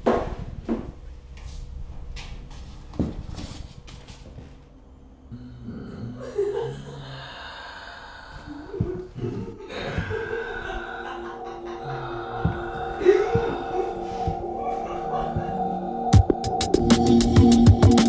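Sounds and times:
eerie music drone: 4.4s - 18.0s
woman gasping breaths: 6.6s - 15.7s.

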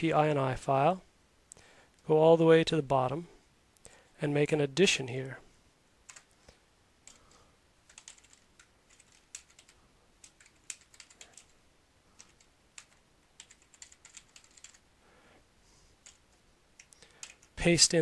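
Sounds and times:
faint keyboard typing: 6.0s - 14.9s, 16.0s - 17.6s.

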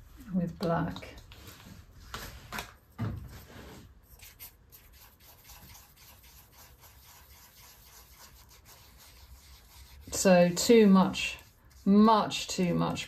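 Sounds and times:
paintbrush rubbing on palette: 3.3s - 13.0s.

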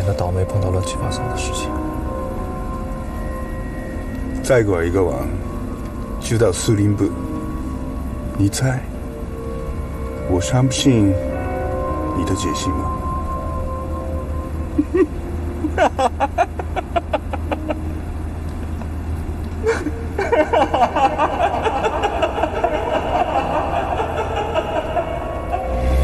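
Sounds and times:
car engine rumbling: 0.0s - 26.0s
man laughing: 14.7s - 18.0s, 19.6s - 25.8s.

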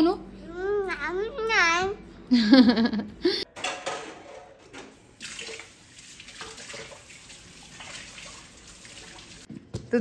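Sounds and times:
tap water running into sink: 5.0s - 9.5s.

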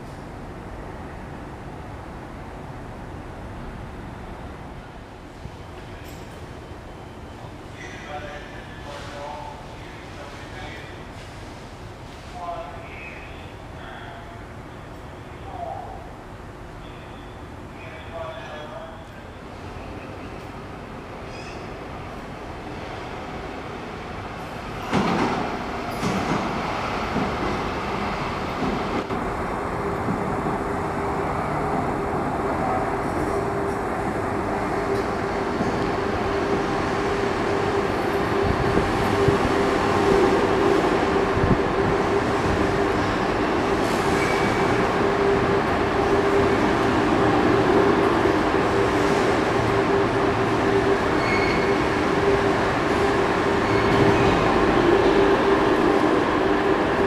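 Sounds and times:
train wheels rumbling on track: 19.5s - 57.0s
train whine: 24.4s - 57.0s.

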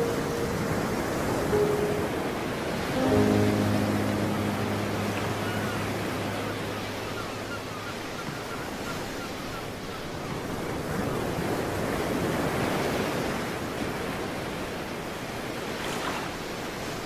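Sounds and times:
low held musical note: 0.0s - 8.4s
ocean surf: 0.0s - 17.0s.

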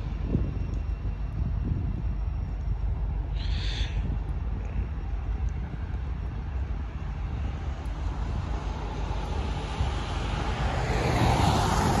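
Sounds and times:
wind rumbling on microphone: 0.0s - 12.0s
car tyres hissing on wet road: 8.2s - 12.0s.

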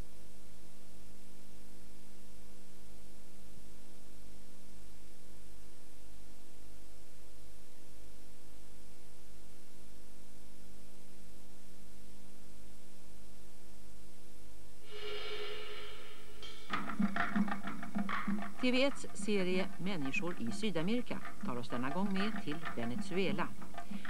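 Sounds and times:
even hiss: 14.8s - 17.7s.

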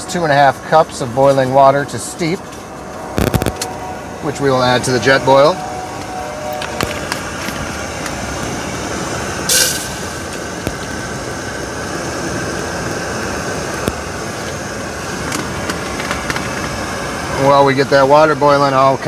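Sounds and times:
gas stove roaring: 0.0s - 19.0s
sharp hiss: 7.0s - 17.5s.

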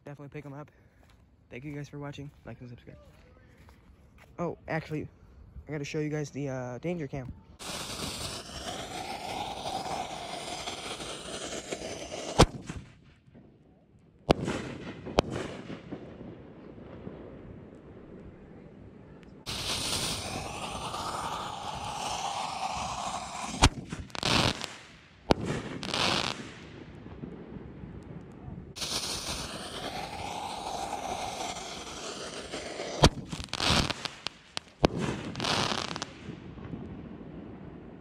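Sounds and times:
firework fuse hissing: 7.6s - 12.9s, 19.5s - 26.6s, 28.8s - 36.3s
sharp firework bangs: 7.6s - 13.0s, 14.3s - 17.6s, 19.4s - 27.4s, 28.7s - 37.1s.

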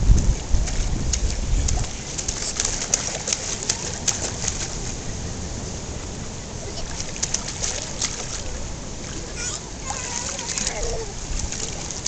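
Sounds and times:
pool water lapping: 0.0s - 12.0s
baby splashing pool water: 0.6s - 4.9s, 6.7s - 12.0s.

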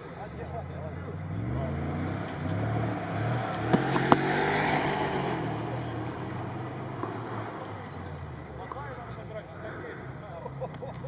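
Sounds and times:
truck engine revving: 0.0s - 11.0s
sharp knocks: 3.6s - 4.4s.

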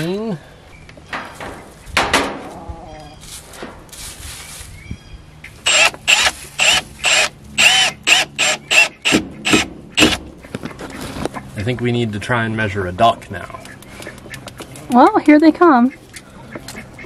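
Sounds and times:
cordless drill whining: 5.6s - 10.1s.

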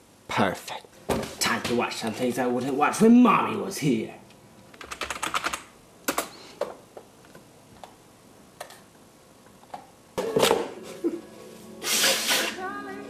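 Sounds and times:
keyboard and mouse clicking: 4.7s - 6.3s.

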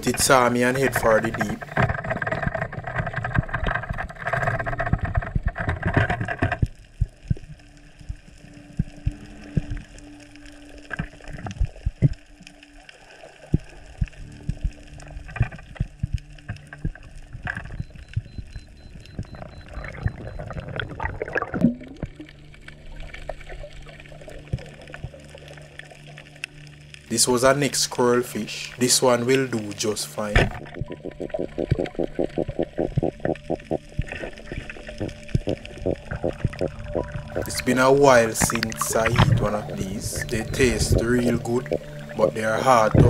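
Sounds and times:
sharp clicks and pops: 0.0s - 10.0s, 13.5s - 23.7s, 30.2s - 42.2s
underwater water rushing: 0.0s - 43.0s
water gurgling: 0.0s - 43.0s.

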